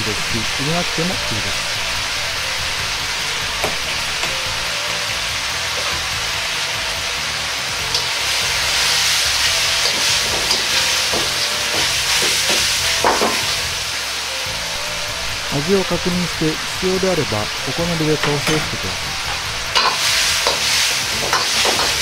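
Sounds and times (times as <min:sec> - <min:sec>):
food sizzling in a wok: 0:00.0 - 0:22.0
ladle scraping a wok: 0:07.9 - 0:13.6.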